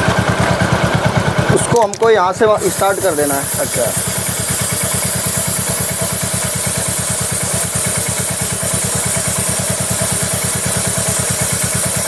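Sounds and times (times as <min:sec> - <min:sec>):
motorcycle engine idling: 0:00.0 - 0:12.0.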